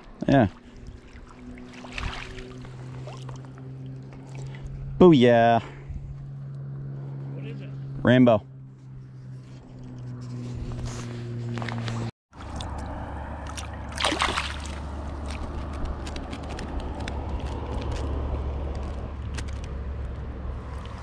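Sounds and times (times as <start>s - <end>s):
water sloshing and splashing: 0.0s - 5.0s, 11.6s - 17.3s
steady low rumble: 0.1s - 21.0s.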